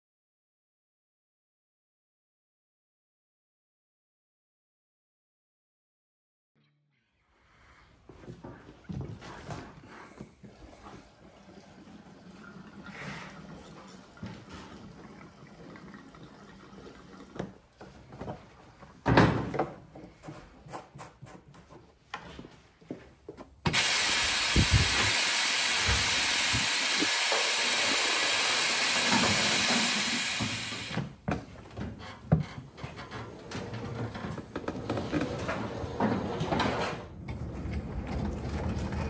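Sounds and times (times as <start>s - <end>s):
loud steady hiss: 23.7s - 31.2s.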